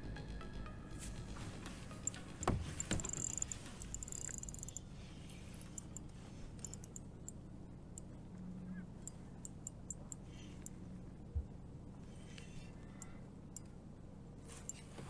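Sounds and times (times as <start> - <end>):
spinning reel ticking: 2.0 - 4.9, 5.6 - 7.3
soft rustle: 14.4 - 15.0.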